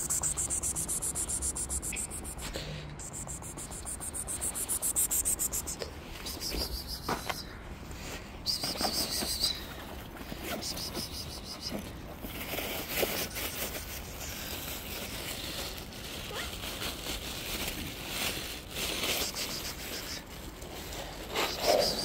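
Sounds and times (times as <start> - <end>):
bag rustling and crinkling: 12.1 - 22.0.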